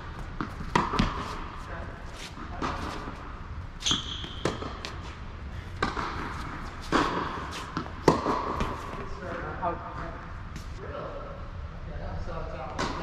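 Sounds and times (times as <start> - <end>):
ball bouncing on court: 0.0 - 1.5, 3.8 - 5.0, 5.8 - 9.4
tennis ball hitting racket: 0.2 - 1.5, 5.8 - 9.2
shoe squeak: 3.8 - 5.0.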